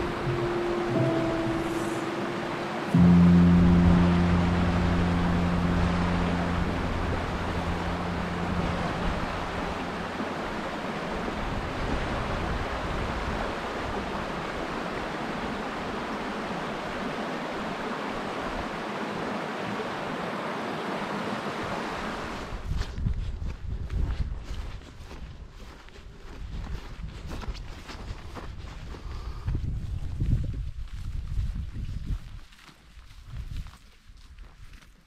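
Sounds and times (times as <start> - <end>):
low musical chord: 0.0 - 11.8
water rushing over stones: 0.0 - 22.6.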